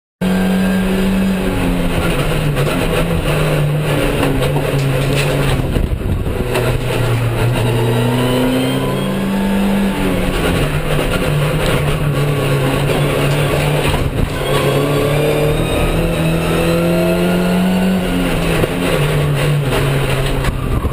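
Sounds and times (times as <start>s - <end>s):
race car engine from cabin: 0.2s - 20.9s
knocks and rattles: 1.6s - 7.9s, 10.2s - 15.2s, 17.8s - 20.9s.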